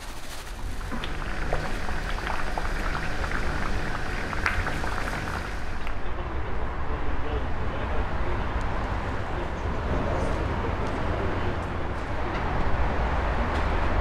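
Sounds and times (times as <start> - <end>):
seeds pouring into plastic tub: 0.0 - 0.9.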